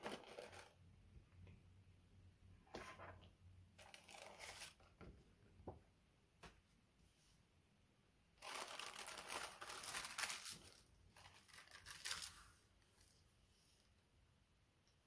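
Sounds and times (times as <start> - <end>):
tissue paper rustling: 3.8 - 4.9, 8.4 - 13.8
paper crackles: 8.4 - 13.2.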